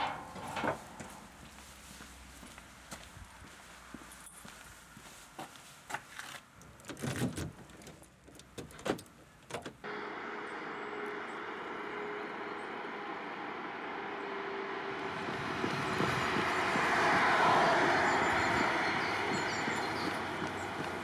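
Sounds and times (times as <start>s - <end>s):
vehicle running with low hum: 9.8s - 21.0s.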